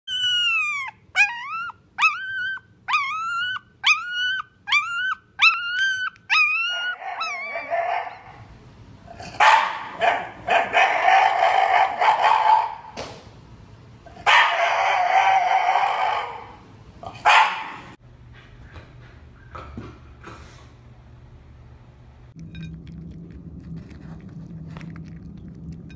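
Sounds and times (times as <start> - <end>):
puppy squealing: 0.1 - 8.3
dog whining moans: 0.1 - 8.4.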